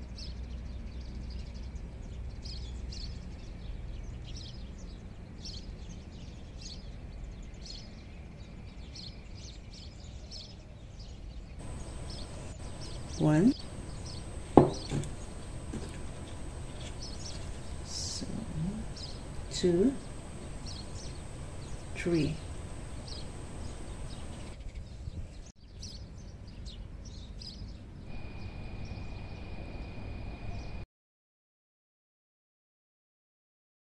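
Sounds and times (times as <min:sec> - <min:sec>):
low background noise: 0:00.0 - 0:30.8
small bird chirping: 0:00.0 - 0:30.8
thin steady tone: 0:11.6 - 0:24.5, 0:28.1 - 0:30.8
low background rumble: 0:11.6 - 0:24.6.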